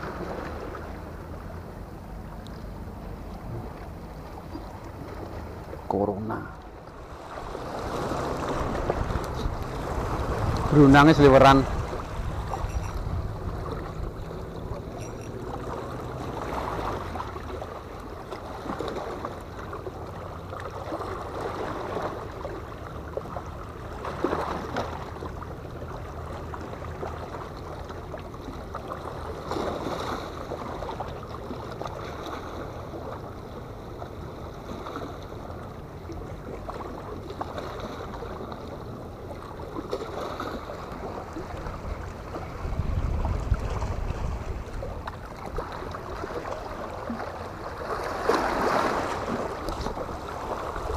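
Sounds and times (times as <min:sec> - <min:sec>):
steady low hum: 0:00.0 - 0:18.2
water lapping against rocks: 0:00.0 - 0:50.9.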